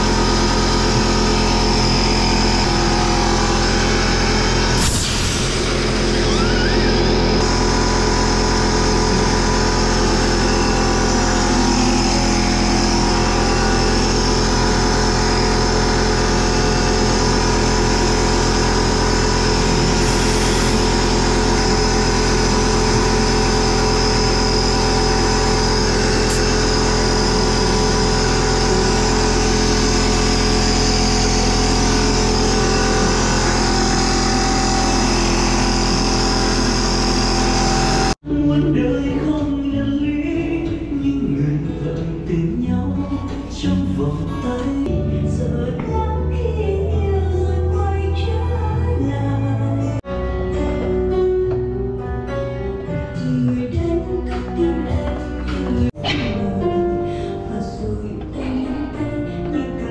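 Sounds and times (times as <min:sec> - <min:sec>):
electric air compressor humming: 0:00.0 - 0:38.3.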